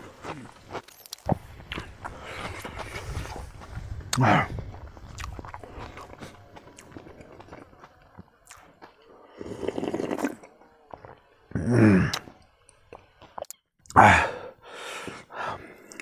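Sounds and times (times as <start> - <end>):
chewing clicks: 5.0 - 8.9
slurping soup: 9.3 - 10.5.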